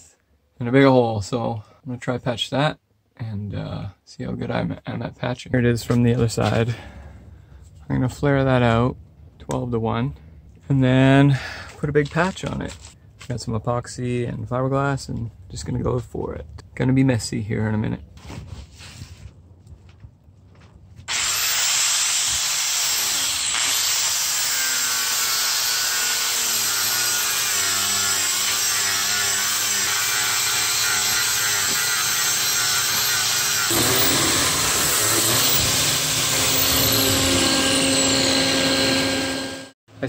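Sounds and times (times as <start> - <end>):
angle grinder grinding fiberglass: 21.1 - 39.8.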